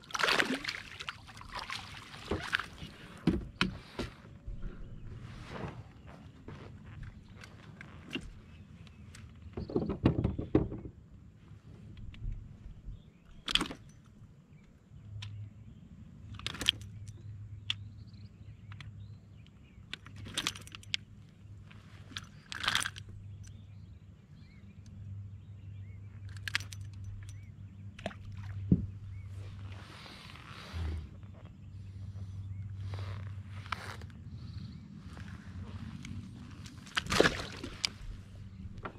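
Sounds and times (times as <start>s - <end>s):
low steady hum: 11.0s - 38.9s
clicks and rattles of gear: 11.9s - 15.4s, 16.2s - 17.9s, 18.6s - 23.7s, 26.1s - 28.4s.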